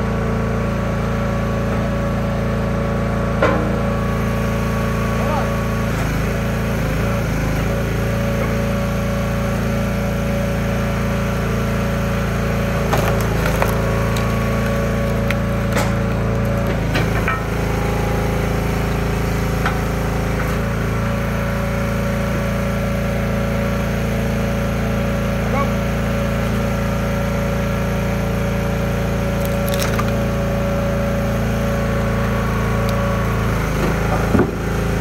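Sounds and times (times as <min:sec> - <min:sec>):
log splitter engine running: 0:00.0 - 0:35.0
wood splitting cracks: 0:12.7 - 0:17.4, 0:29.2 - 0:30.5.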